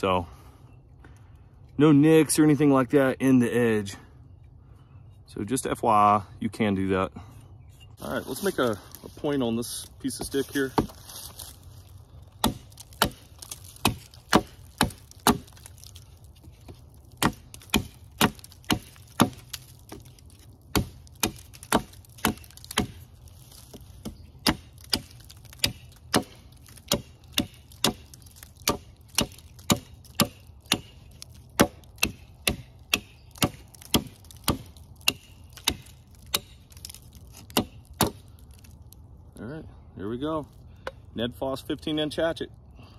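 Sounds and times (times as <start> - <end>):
hatchet chopping wood: 10.1 - 11.0, 12.4 - 38.7.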